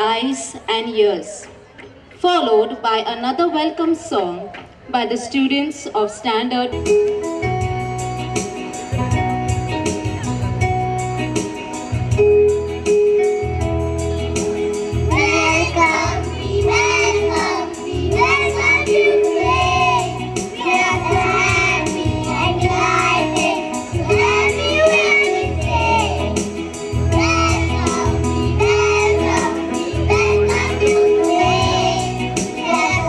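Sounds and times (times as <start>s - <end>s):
instrumental accompaniment: 6.8s - 33.0s
children singing together: 15.1s - 26.5s, 27.1s - 33.0s.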